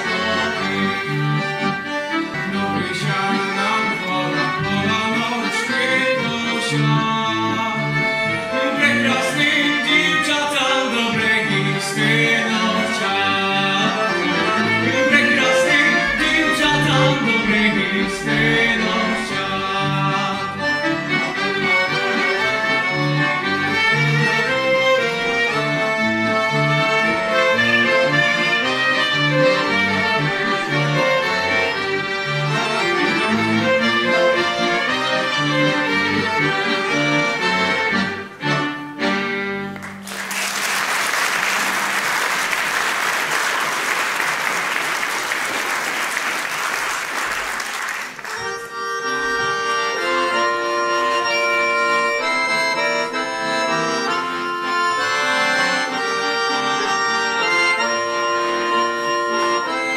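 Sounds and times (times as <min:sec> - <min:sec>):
folk band of fiddles and accordions: 0:00.0 - 0:40.0, 0:41.2 - 0:59.9
audience applauding: 0:39.7 - 0:48.7.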